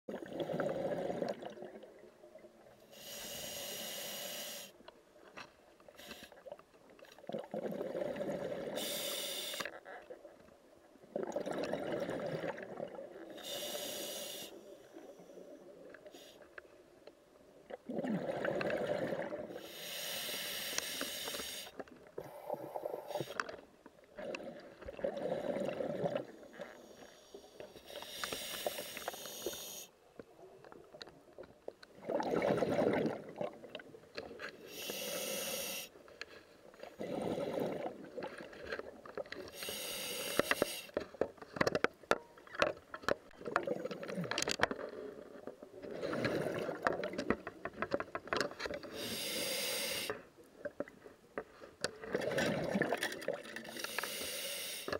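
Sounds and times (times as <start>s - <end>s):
diver breathing through regulator: 2.8s - 4.8s, 8.7s - 9.7s, 13.3s - 15.5s, 19.5s - 23.6s, 26.7s - 30.0s, 34.6s - 36.0s, 39.5s - 41.0s, 48.8s - 50.3s, 53.6s - 54.9s.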